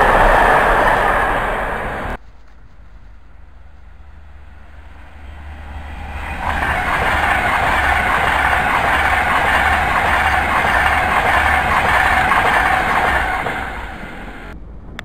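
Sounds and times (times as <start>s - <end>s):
electric train rushing past: 0.0s - 2.2s, 3.3s - 14.6s
wheels clattering over rails: 4.9s - 14.6s.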